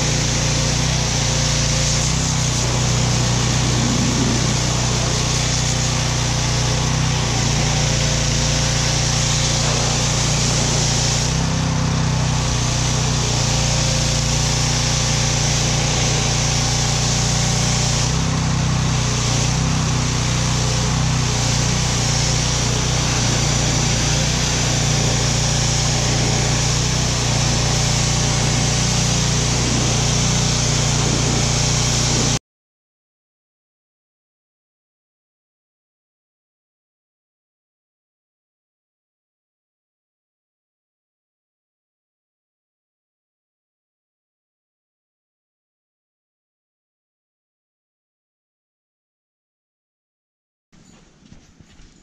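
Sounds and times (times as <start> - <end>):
pressure washer engine humming: 0.0 - 32.4
water jet hissing: 0.0 - 32.4.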